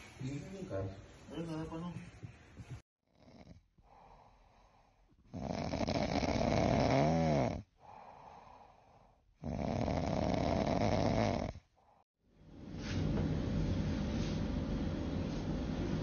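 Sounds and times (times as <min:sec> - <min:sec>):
cat snoring: 0:05.3 - 0:08.0, 0:09.4 - 0:11.6.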